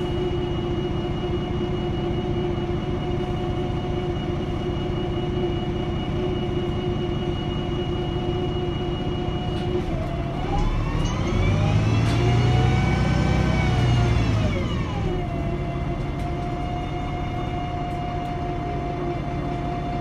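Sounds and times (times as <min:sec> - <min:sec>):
bus diesel engine accelerating: 0:00.0 - 0:20.0.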